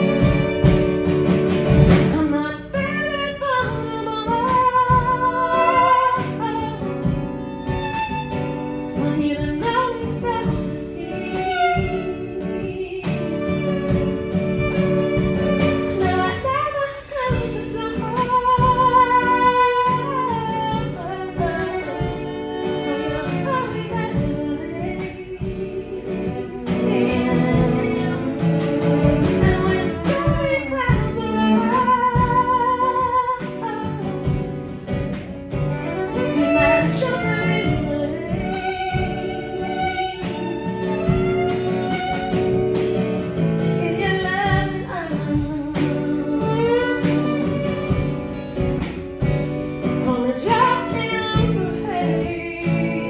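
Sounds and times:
drum kit: 0.0s - 53.0s
fiddle: 0.0s - 53.0s
strummed acoustic guitar: 0.0s - 53.0s
woman singing: 1.7s - 42.4s, 43.4s - 53.0s.

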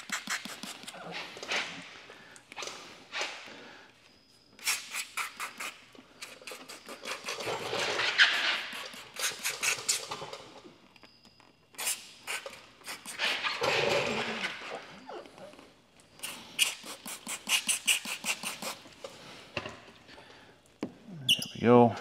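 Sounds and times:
spray bottle hissing: 0.0s - 1.0s, 4.6s - 7.5s, 8.4s - 10.1s, 11.8s - 13.5s, 16.2s - 18.9s
scratchy rubbing: 0.0s - 1.4s, 4.6s - 10.0s, 16.2s - 18.9s.

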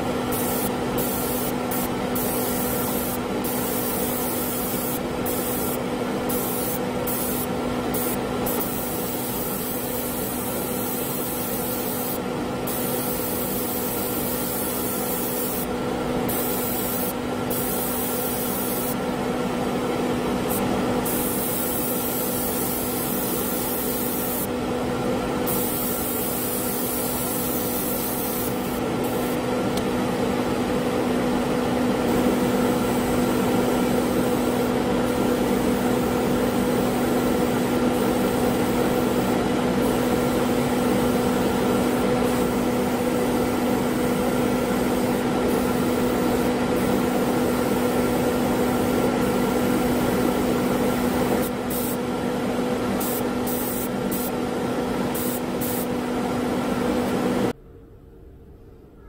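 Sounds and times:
exhaust fan hum: 0.0s - 59.0s
airbrush spraying hiss: 0.3s - 15.7s, 16.3s - 19.0s, 20.5s - 24.5s, 25.5s - 29.4s, 41.8s - 43.0s, 44.0s - 52.1s, 52.9s - 54.4s, 55.0s - 55.9s.

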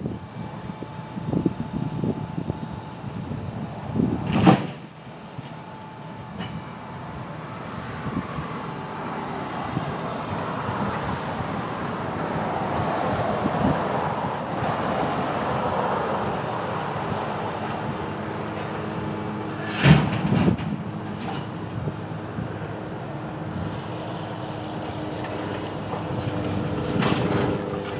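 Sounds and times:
truck engine and hydraulics: 0.0s - 27.9s
heavy clanks in steel truck bed: 4.2s - 5.5s, 19.5s - 21.6s.

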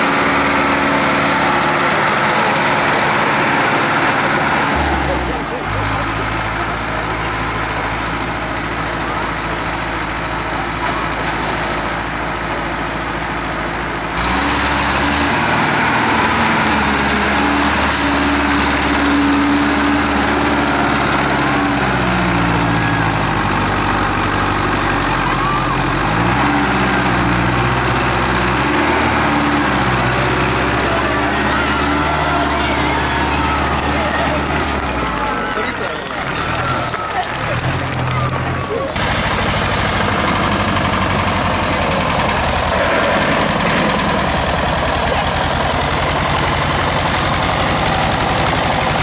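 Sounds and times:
close tractor engine: 0.0s - 49.0s
tractor engine in mud: 0.0s - 49.0s.

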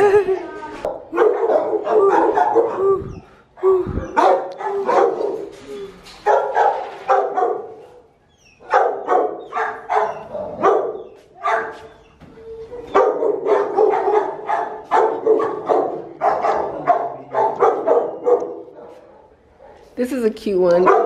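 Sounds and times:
dogs barking: 0.9s - 3.0s, 4.1s - 5.6s, 6.2s - 12.0s, 12.9s - 20.0s, 20.8s - 21.0s.

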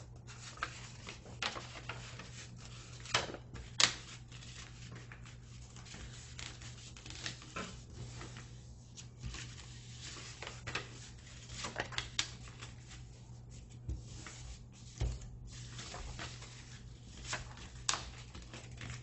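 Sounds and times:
paper rustling and crinkling: 0.2s - 19.0s
paper snapping: 17.2s - 18.8s.

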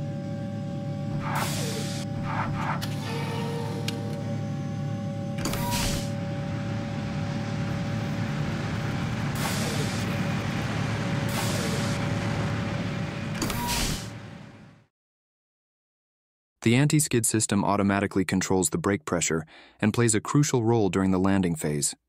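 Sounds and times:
airliner landing roar: 0.0s - 14.8s
constant hum: 0.0s - 14.9s
short hisses: 1.3s - 2.1s, 9.4s - 10.1s, 11.3s - 12.0s.

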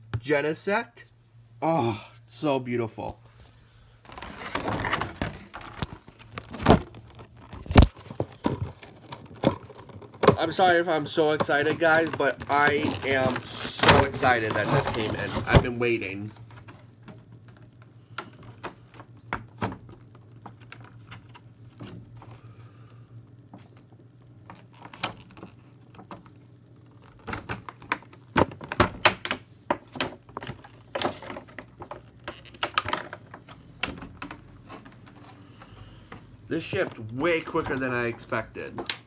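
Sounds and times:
faint low hum: 0.0s - 39.0s
box and packaging being handled: 3.9s - 22.4s, 23.5s - 39.0s.

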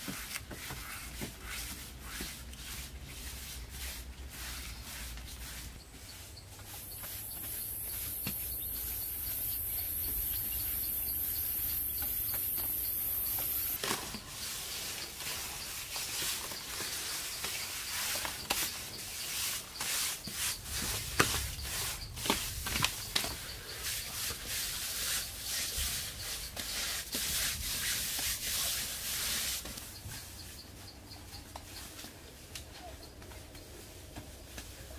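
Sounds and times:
hands rubbing damp sand: 0.0s - 32.4s
high insect drone: 6.6s - 13.8s, 14.4s - 26.6s.

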